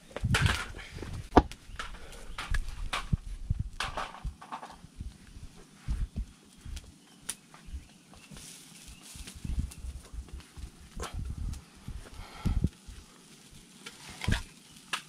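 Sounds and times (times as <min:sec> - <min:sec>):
low thumps and rumble: 0:00.0 - 0:06.9, 0:09.4 - 0:12.7
fire crackling: 0:00.0 - 0:15.0.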